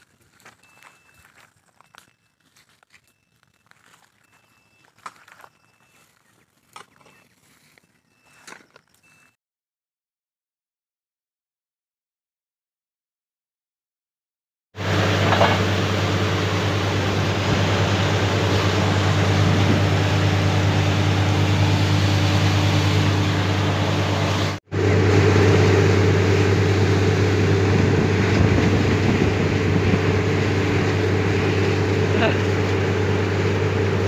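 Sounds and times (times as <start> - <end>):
drilling rig engine and compressor drone: 14.8 - 34.0.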